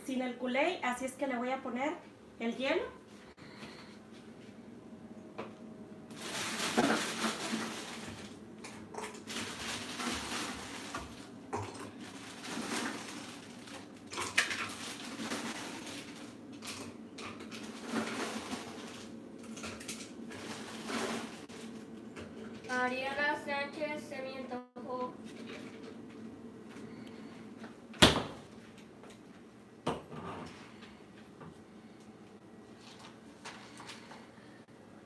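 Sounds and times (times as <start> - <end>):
ice cubes clattering in plastic bucket: 6.1 - 21.5.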